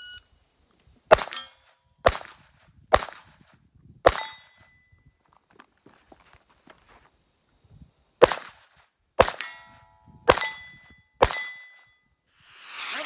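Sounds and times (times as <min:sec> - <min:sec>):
pistol shots: 0:01.1 - 0:03.4, 0:04.1 - 0:04.6, 0:08.2 - 0:09.7, 0:10.3 - 0:11.8
steel plate ringing: 0:04.2 - 0:04.8, 0:09.4 - 0:12.0.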